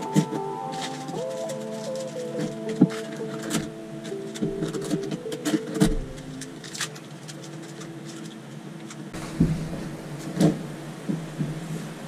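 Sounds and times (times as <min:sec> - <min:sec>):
dull thump: 0:09.2 - 0:11.7.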